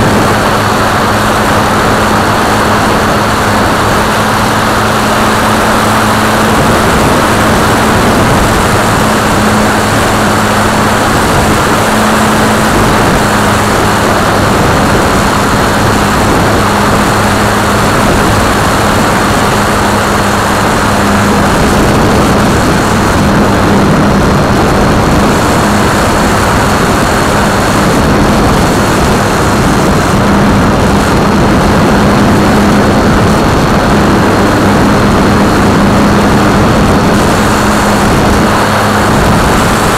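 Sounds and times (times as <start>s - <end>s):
propeller drone with whine: 0.0s - 39.9s
rushing wind: 0.0s - 39.9s.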